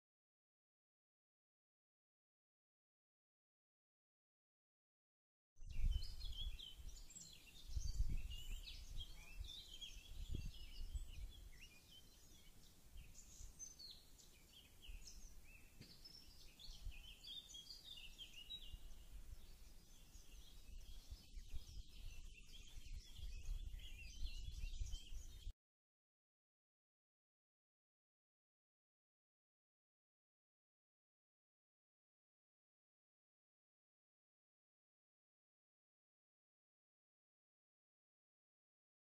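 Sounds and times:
wind rumble on microphone: 5.6 - 12.4, 14.5 - 17.2, 17.8 - 25.5
songbirds singing: 5.6 - 25.5.

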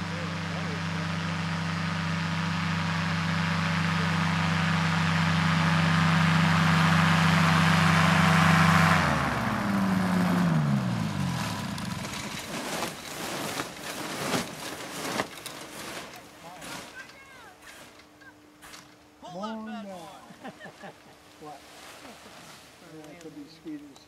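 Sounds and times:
engine and propeller running: 0.0 - 13.8.

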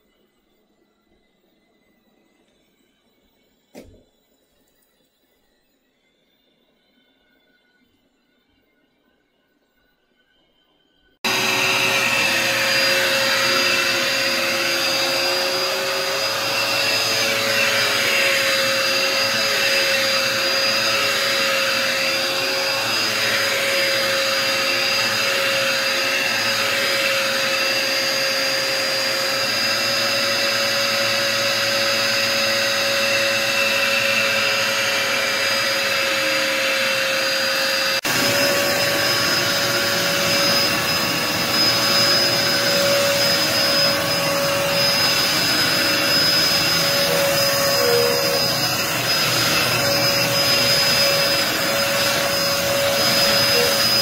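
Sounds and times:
vacuum cleaner on hardwood floor: 3.7 - 4.1, 11.2 - 54.0
vacuum cleaner on carpet: 11.2 - 54.0.

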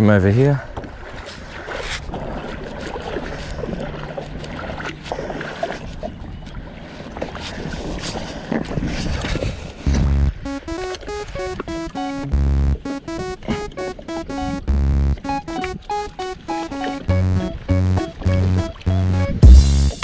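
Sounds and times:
footsteps splashing through water: 0.6 - 10.2
wind buffeting microphone: 0.8 - 9.9.

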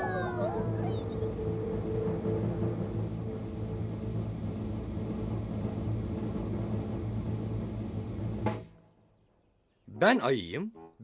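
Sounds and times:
low droning rumble: 1.4 - 8.6.

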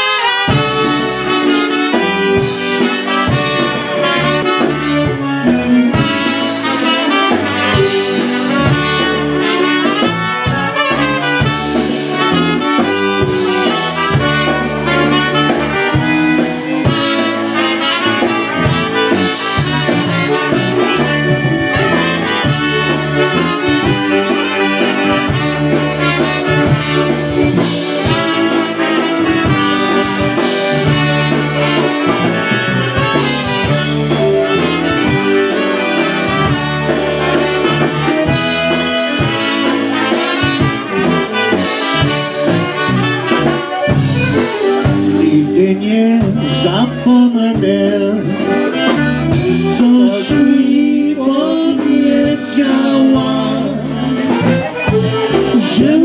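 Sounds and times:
accordion: 0.0 - 56.0
concertina: 0.0 - 56.0
drum kit: 0.0 - 56.0
electric bass: 0.0 - 56.0
trumpets: 0.0 - 56.0.

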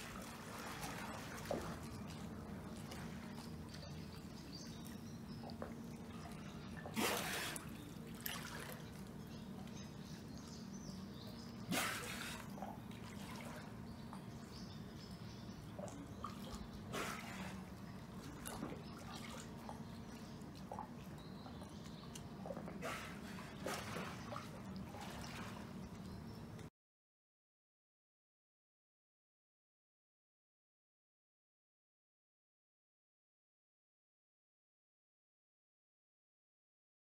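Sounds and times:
dolphin splashing: 0.0 - 9.6, 11.5 - 13.8, 15.7 - 26.0
steady low hum: 0.0 - 26.7
water lapping and dripping: 0.0 - 26.7.

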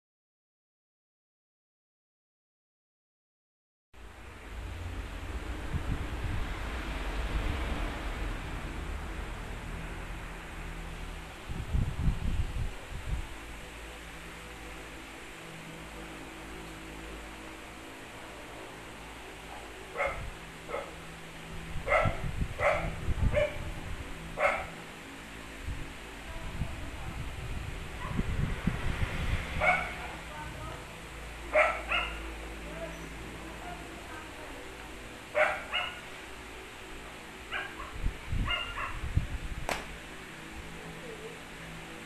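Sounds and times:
dogs barking while playing: 19.6 - 21.0, 21.8 - 23.6, 24.4 - 24.8, 29.6 - 30.0, 31.5 - 32.4, 35.3 - 36.2, 37.4 - 39.0
dogs barking in sharp yaps: 31.5 - 32.2, 35.4 - 36.1, 37.5 - 39.0
sharp click: 39.7 - 39.9.

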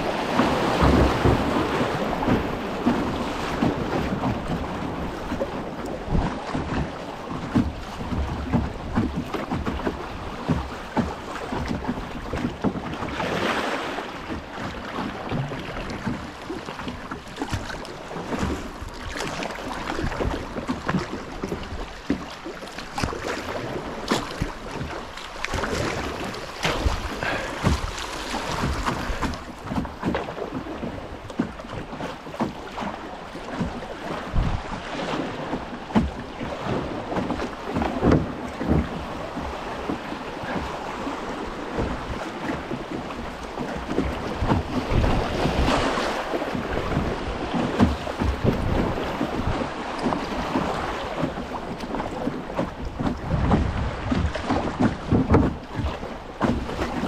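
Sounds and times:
river water rushing and splashing: 0.0 - 57.0
wind buffeting microphone: 35.9 - 57.0.

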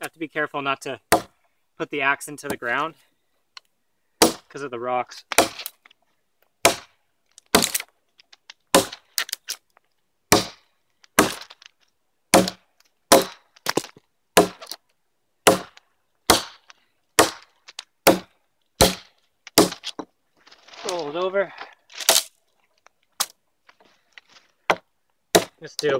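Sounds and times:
axe chopping wood: 1.1 - 1.4, 4.2 - 4.6, 5.2 - 5.8, 6.6 - 7.9, 8.7 - 9.4, 10.3 - 11.7, 12.3 - 14.8, 15.4 - 20.1, 24.6 - 25.6.

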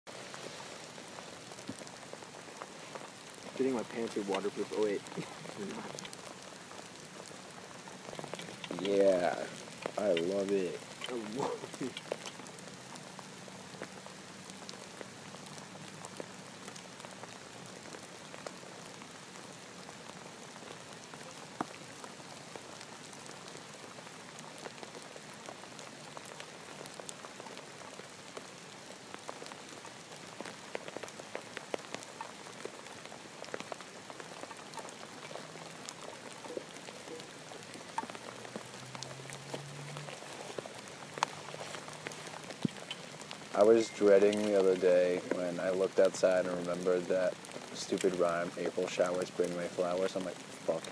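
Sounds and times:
rain pattering: 0.0 - 50.9
drops ticking: 1.5 - 17.3, 30.2 - 50.9.

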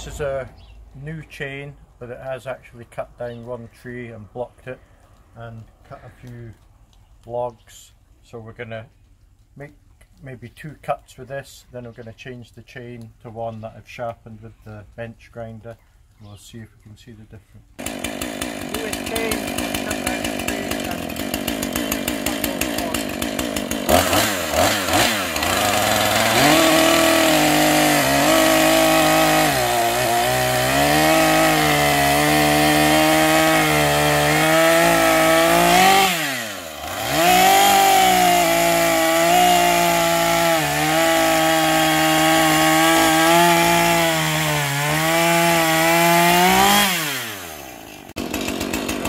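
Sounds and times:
chainsaw cutting log: 17.8 - 49.0.

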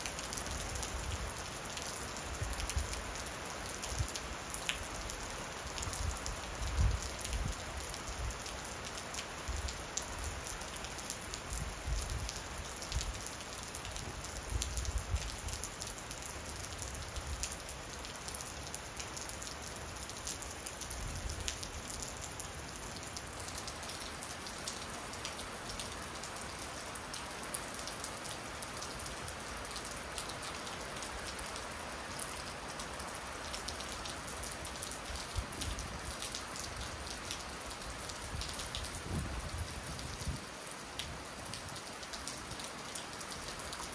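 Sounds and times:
steady rain hiss: 0.0 - 43.9.

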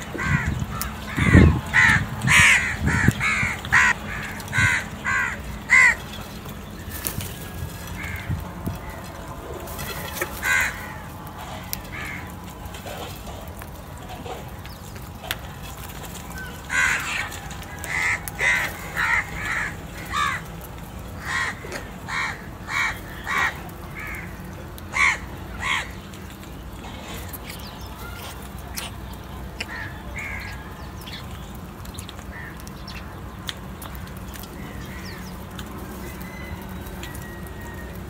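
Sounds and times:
crows cawing: 0.0 - 6.1, 7.9 - 9.0, 10.0 - 12.4, 16.4 - 20.6, 21.2 - 26.0, 29.6 - 30.7, 32.3 - 32.7.

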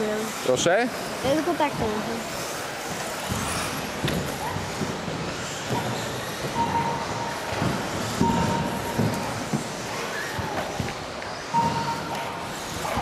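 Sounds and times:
rc buggy tyres and drivetrain rumble: 0.0 - 13.0.

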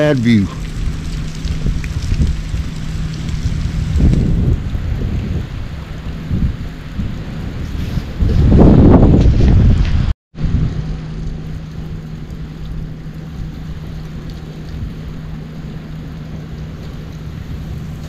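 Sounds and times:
low steady hum: 0.0 - 7.6, 10.4 - 18.0
wind rumbling on microphone: 0.0 - 18.0.

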